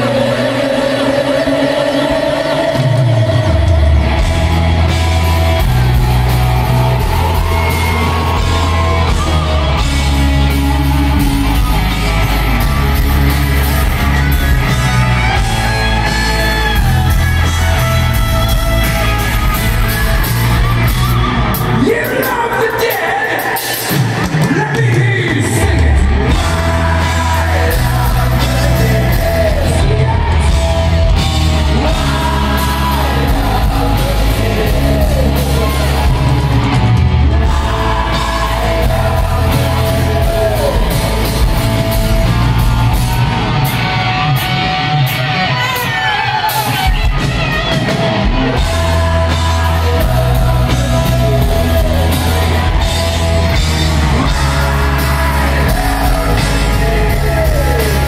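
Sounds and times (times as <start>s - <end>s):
live hard rock band: 0.0s - 58.0s
person singing: 21.5s - 42.8s, 45.4s - 58.0s.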